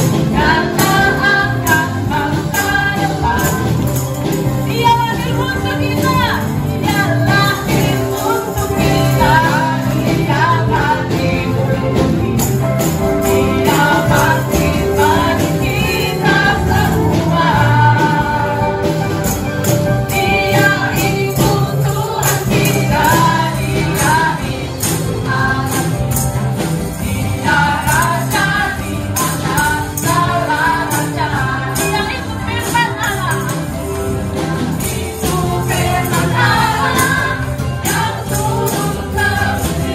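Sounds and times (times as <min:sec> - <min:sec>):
band playing: 0:00.0 - 0:39.9
group singing worship song: 0:00.0 - 0:39.9
tambourines jingling: 0:00.0 - 0:39.9.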